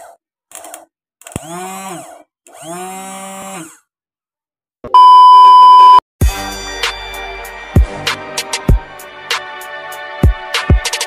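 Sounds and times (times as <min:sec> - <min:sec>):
electronic beep tone: 0:05.0 - 0:06.0
music: 0:06.2 - 0:11.0.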